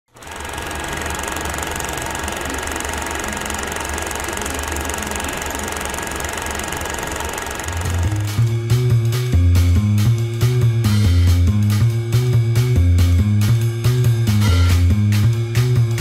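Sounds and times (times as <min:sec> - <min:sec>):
film projector whirring: 0:00.1 - 0:08.9
music with plucked bass: 0:08.0 - 0:16.0.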